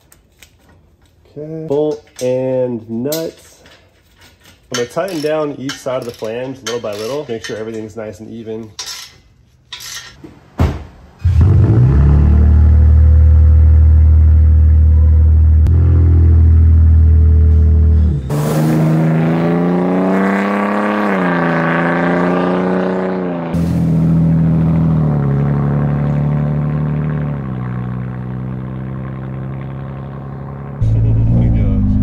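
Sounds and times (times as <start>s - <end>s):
pickup truck accelerating past: 15.7s - 32.0s.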